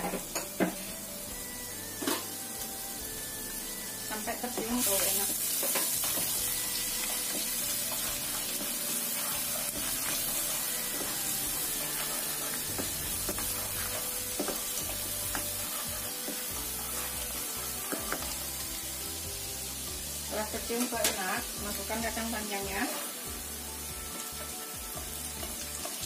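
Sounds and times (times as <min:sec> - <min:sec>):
garlic sizzling in hot oil: 0:00.0 - 0:26.0
spatula scraping and tapping pan: 0:04.5 - 0:06.4, 0:07.0 - 0:18.4.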